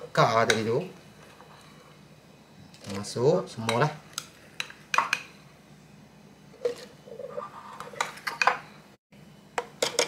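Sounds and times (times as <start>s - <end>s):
spoon scraping a bowl: 6.6s - 8.6s.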